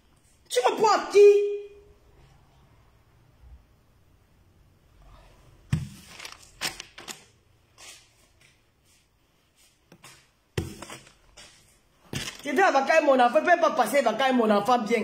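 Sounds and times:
banknotes rustling: 5.8 - 8.1.

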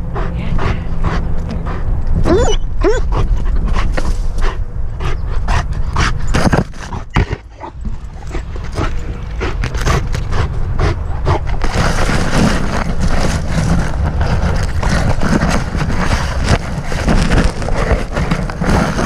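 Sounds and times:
dog panting: 0.0 - 6.3, 6.9 - 13.4
dog whining: 2.2 - 3.5
branches brushing and rustling: 11.5 - 19.0.

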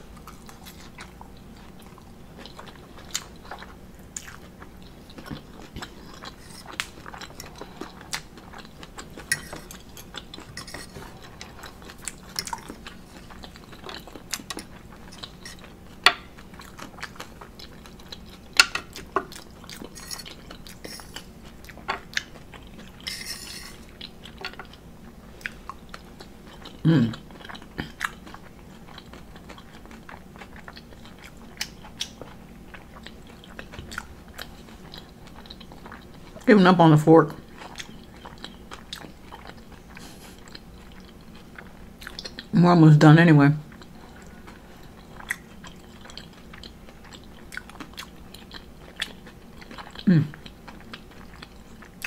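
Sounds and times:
chewing and mouth sounds: 0.0 - 36.5, 37.2 - 42.6, 43.6 - 52.0
fork clinking on ceramic plate: 9.3 - 11.0.

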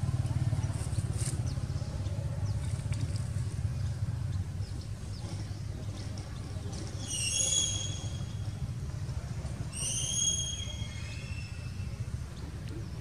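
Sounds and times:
steady low rumble: 0.0 - 7.0, 10.7 - 13.0
high whistled animal calls: 7.0 - 8.5, 9.7 - 11.9.

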